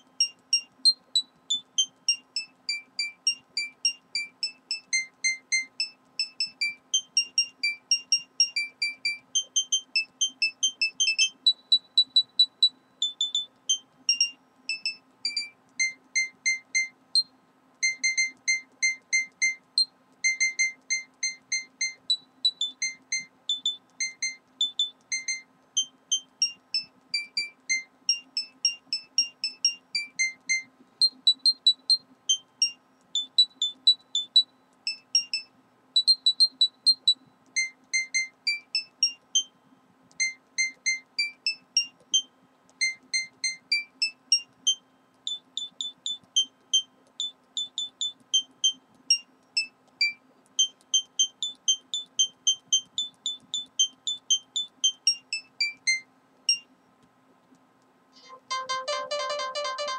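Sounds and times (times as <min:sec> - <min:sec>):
faint steady hum: 0:00.0 - 0:59.9
high beeping melody: 0:58.2 - 0:59.9.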